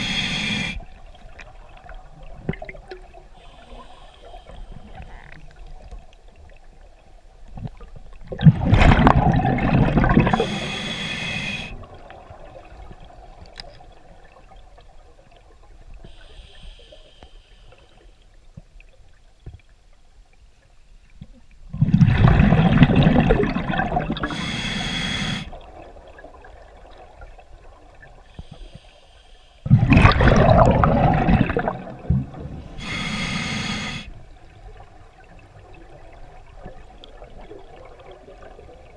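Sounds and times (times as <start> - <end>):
exhaled bubbles rushing underwater: 0.0 - 3.4, 7.6 - 10.8, 21.7 - 24.4, 29.7 - 33.3, 33.9 - 38.9
faint steady hum: 0.0 - 38.9.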